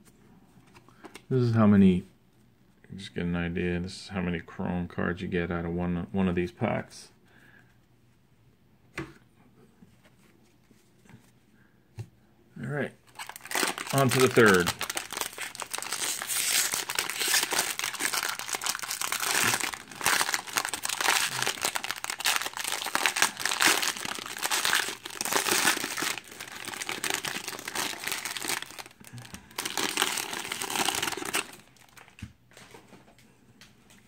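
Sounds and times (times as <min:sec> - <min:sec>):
foil wrapper crinkling: 0:13.1 - 0:32.2.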